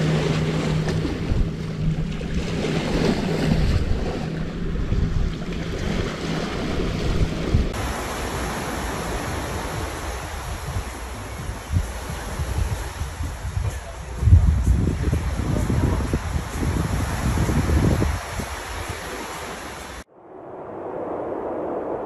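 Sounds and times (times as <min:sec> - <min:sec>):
steady low hum: 0:00.0 - 0:12.6
wind buffeting microphone: 0:00.0 - 0:20.1
small waves washing on pebbly shore: 0:05.8 - 0:13.4, 0:15.2 - 0:20.1.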